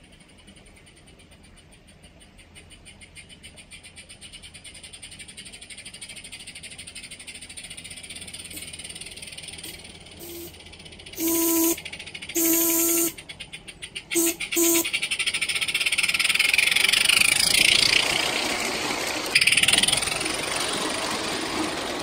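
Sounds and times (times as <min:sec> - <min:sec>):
steam locomotive chuffing: 0:06.2 - 0:22.0
steam whistle blasts: 0:10.2 - 0:10.5, 0:11.2 - 0:11.8, 0:12.4 - 0:13.2, 0:14.1 - 0:14.9.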